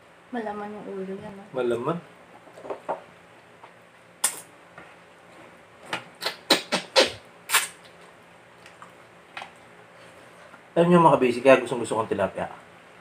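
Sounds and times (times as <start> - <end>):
wet slurping mouth sounds: 6.2 - 7.9.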